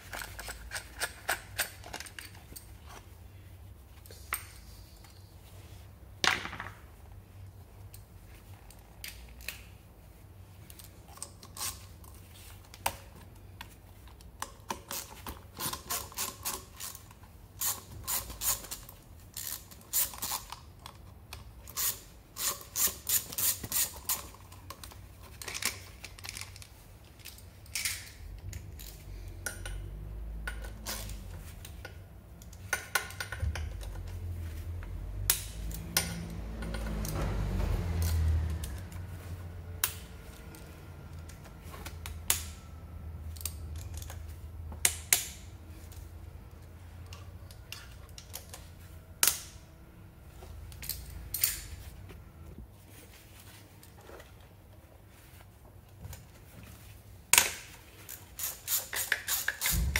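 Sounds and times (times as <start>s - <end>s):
metallic clicks of hand tools: 35.2s - 37.2s, 50.7s - 51.7s, 57.3s - 59.9s.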